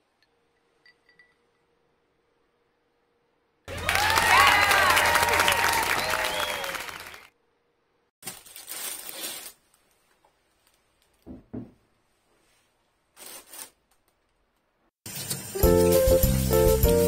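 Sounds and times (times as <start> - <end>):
applause: 3.7 - 7.3.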